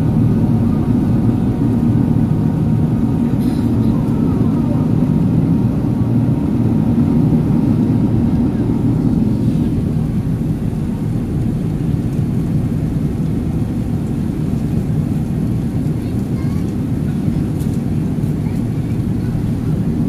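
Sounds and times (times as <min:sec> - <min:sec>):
airplane cabin engine drone: 0:00.0 - 0:20.0.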